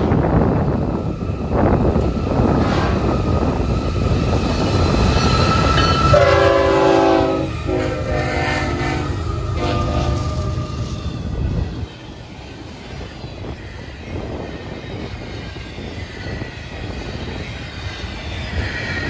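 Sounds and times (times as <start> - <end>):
freight train rumbling: 0.0 - 19.0
locomotive air horn: 2.6 - 3.1, 6.0 - 10.9.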